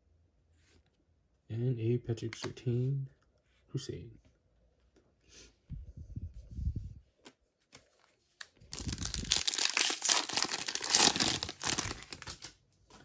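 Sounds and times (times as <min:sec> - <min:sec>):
plastic wrapper tearing and crinkling: 0:08.4 - 0:12.6.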